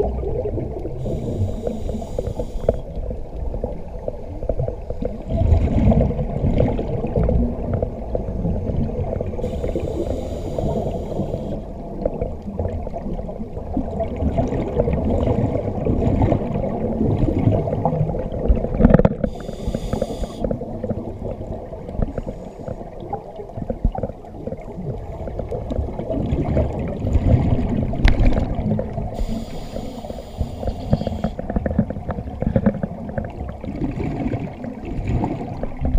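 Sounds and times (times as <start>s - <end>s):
exhaled bubbles rumbling underwater: 0.0s - 35.9s
regulator hiss: 1.0s - 2.9s, 9.4s - 11.7s, 19.3s - 20.5s, 29.2s - 31.4s.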